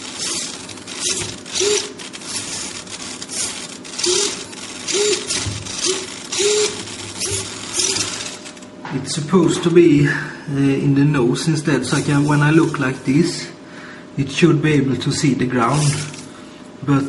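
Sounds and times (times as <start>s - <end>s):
servos whirring: 0.0s - 8.7s, 11.8s - 13.3s, 15.6s - 16.3s.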